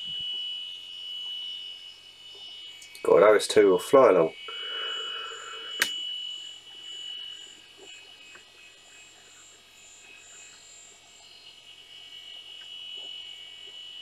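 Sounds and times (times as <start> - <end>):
computer high whine: 0.0 - 14.0.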